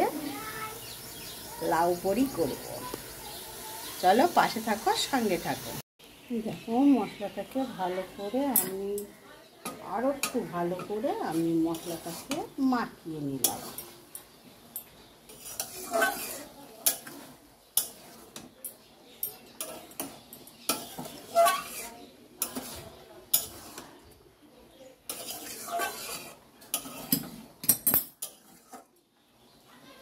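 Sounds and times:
metal spatula scraping a wok: 9.6s - 14.1s, 15.2s - 18.6s, 19.2s - 24.0s, 25.0s - 29.0s.

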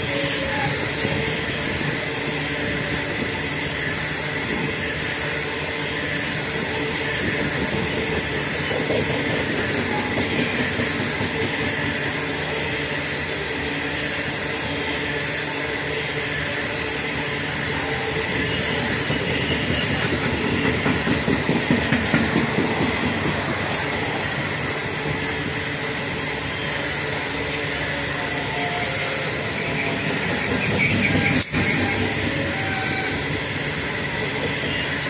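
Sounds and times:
steel wheels clattering on rails: 6.5s - 12.0s, 17.5s - 26.4s, 28.6s - 35.0s.

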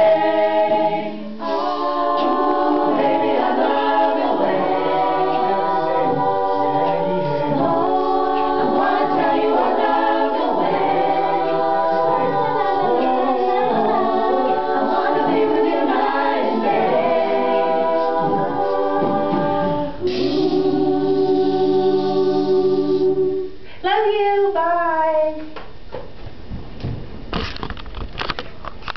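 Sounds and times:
a cappella group singing: 0.0s - 23.6s.

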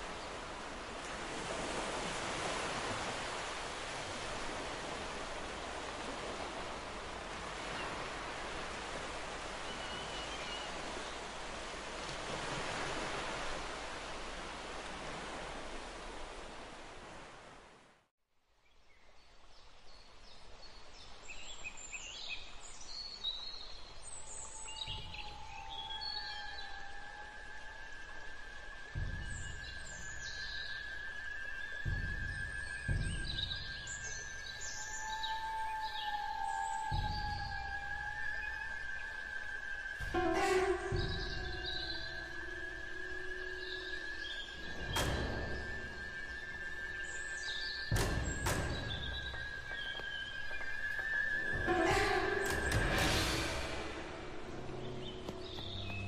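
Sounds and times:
sea surf: 0.0s - 17.8s, 24.7s - 56.0s
wind: 0.0s - 56.0s
birds chirping and calling: 29.0s - 56.0s
low bump: 39.9s - 56.0s.

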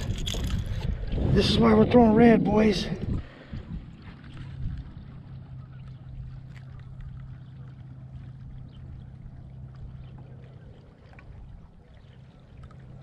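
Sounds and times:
boat motor humming: 0.0s - 13.0s
low rumble: 0.0s - 13.0s
water lapping: 0.0s - 13.0s.

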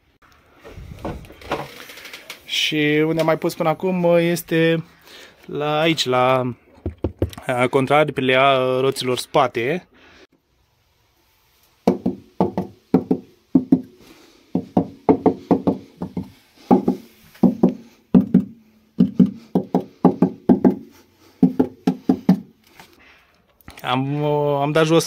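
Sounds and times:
knuckles knocking on metal panel: 14.6s - 20.8s, 21.4s - 22.5s.

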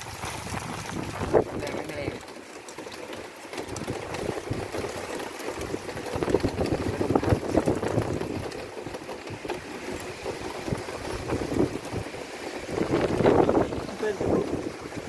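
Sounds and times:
storm wind buffeting microphone: 0.0s - 2.1s, 5.6s - 8.6s, 9.3s - 15.0s.

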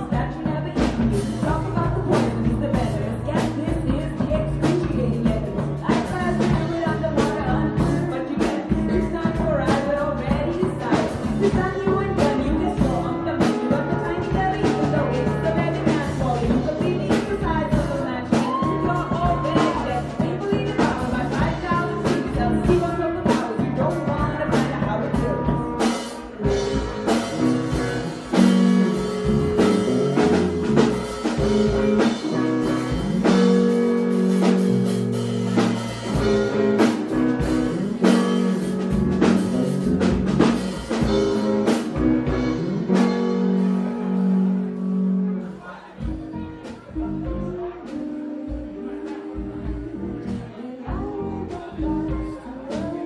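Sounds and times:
woman singing: 0.0s - 26.1s, 46.7s - 53.0s
live rock band playing: 0.0s - 53.0s.

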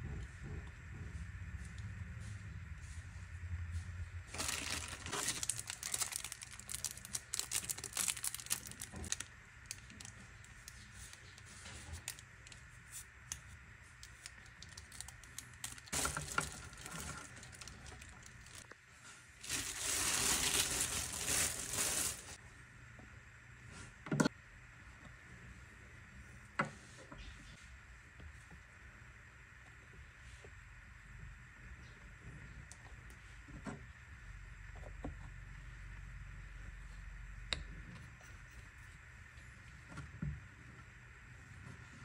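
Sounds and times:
plastic bags crinkling: 4.3s - 11.1s, 14.0s - 18.7s, 19.4s - 22.4s.

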